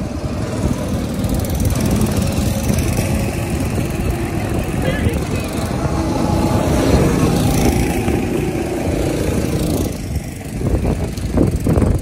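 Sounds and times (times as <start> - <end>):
go-kart engine driving past: 0.0 - 12.0.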